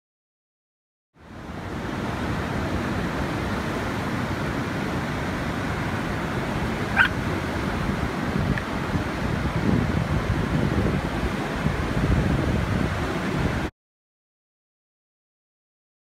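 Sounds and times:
waves breaking on beach: 0:01.2 - 0:13.7
wind buffeting microphone: 0:04.8 - 0:13.7.

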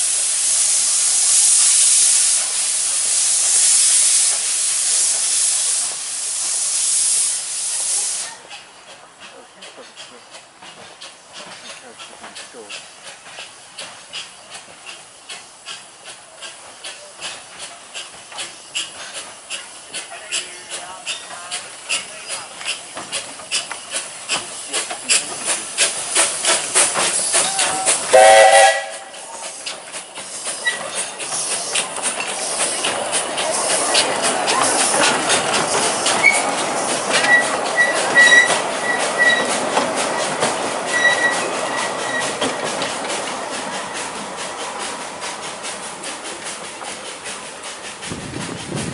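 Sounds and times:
steam hissing: 0:00.0 - 0:48.9
steam locomotive chuffing: 0:00.0 - 0:48.9
train wheels clicking over rail joints: 0:00.0 - 0:48.9
high wheel squeal: 0:30.5 - 0:31.8, 0:36.2 - 0:39.6, 0:40.2 - 0:42.6.

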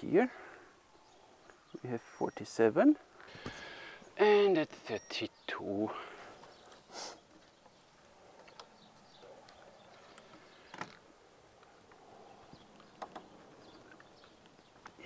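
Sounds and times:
faint clicks and knocks: 0:06.4 - 0:15.0.

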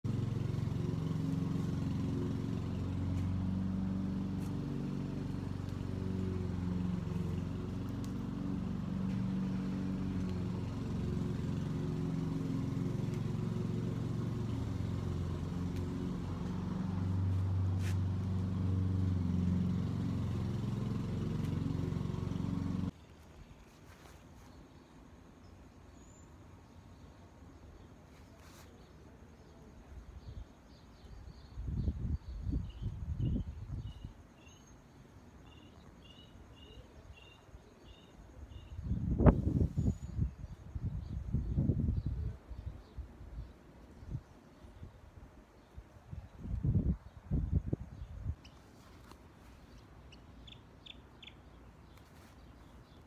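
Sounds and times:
low engine hum: 0:00.0 - 0:23.0.

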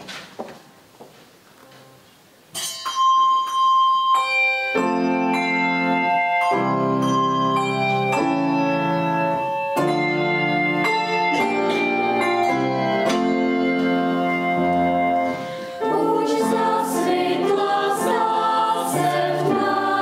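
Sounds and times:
keyboard notes and chords: 0:02.6 - 0:20.0.

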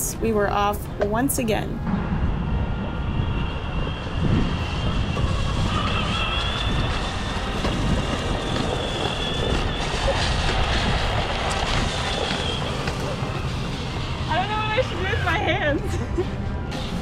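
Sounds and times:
wind buffeting microphone: 0:00.0 - 0:17.0
faint high whine: 0:01.7 - 0:17.0
skateboard wheels rolling on concrete: 0:04.6 - 0:15.0.

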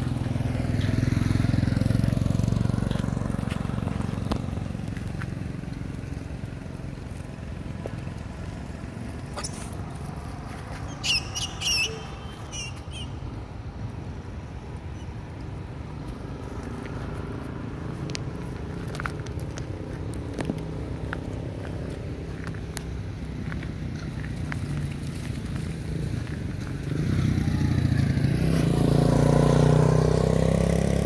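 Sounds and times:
macaques squealing: 0:10.9 - 0:13.2.

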